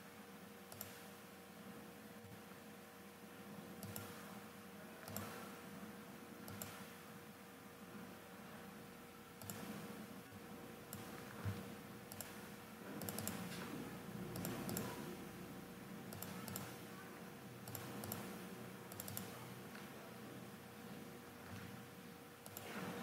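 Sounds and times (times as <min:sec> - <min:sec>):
low steady hum: 0:00.0 - 0:23.0
computer mouse clicking: 0:00.7 - 0:01.1, 0:03.8 - 0:04.2, 0:05.0 - 0:05.5, 0:06.4 - 0:06.9, 0:09.4 - 0:09.8, 0:10.9 - 0:13.7, 0:14.3 - 0:15.0, 0:16.1 - 0:16.8, 0:17.6 - 0:19.4, 0:22.4 - 0:22.8.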